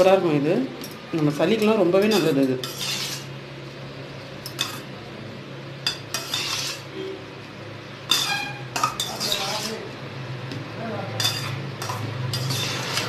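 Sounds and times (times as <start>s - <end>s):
spoon scraping metal bowl: 2.0s - 3.4s, 5.9s - 7.1s, 8.1s - 9.9s, 11.2s - 13.0s.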